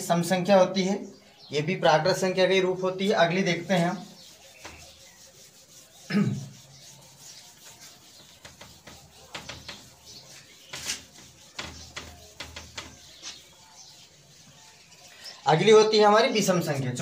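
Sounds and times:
rubbing on whiteboard: 2.8s - 16.6s.

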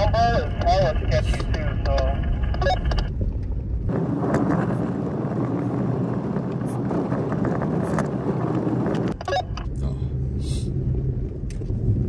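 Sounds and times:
truck road rumble: 0.0s - 12.0s
hissing road noise: 3.4s - 12.0s.

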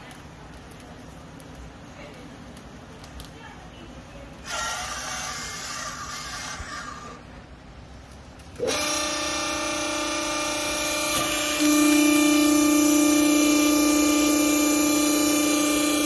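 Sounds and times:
hydraulic pump motor humming: 4.4s - 7.3s, 8.5s - 16.0s.

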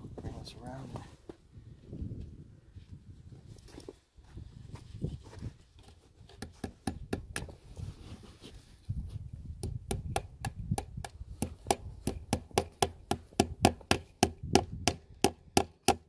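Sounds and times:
hammer striking staples into wood: 9.6s - 16.0s.

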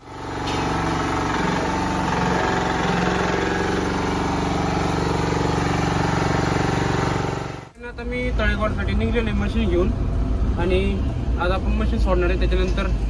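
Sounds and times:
small roller engine running: 0.0s - 7.7s.

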